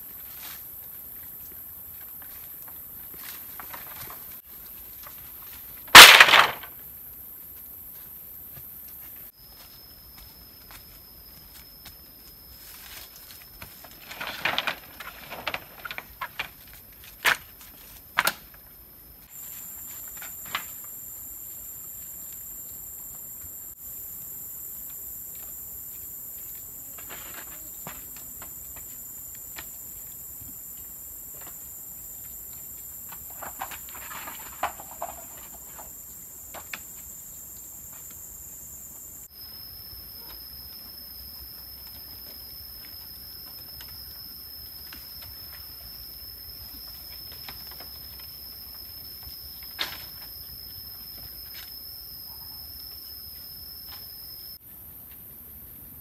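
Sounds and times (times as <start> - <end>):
rustling undergrowth: 0.0 - 22.5
insects droning: 0.0 - 56.0
footsteps in undergrowth: 7.3 - 14.1.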